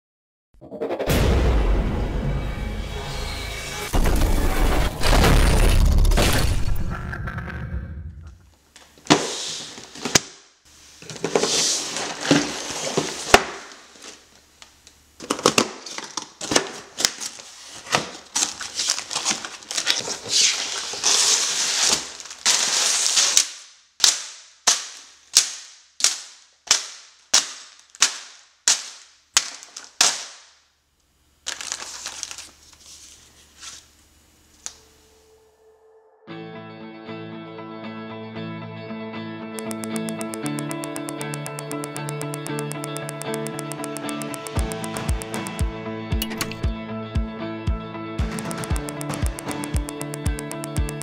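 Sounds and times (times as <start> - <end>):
sharp clacks: 39.6 - 46.6, 48.2 - 51.0.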